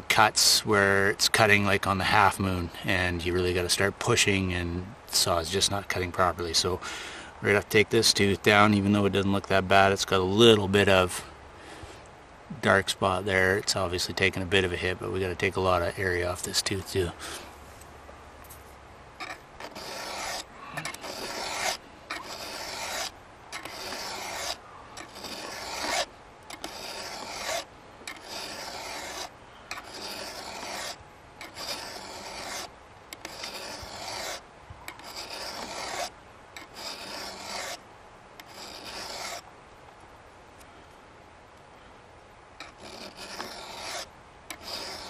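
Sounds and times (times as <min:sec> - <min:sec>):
file rasping on saw chain: 0:19.2 - 0:37.8, 0:38.4 - 0:39.4, 0:42.6 - 0:45.0.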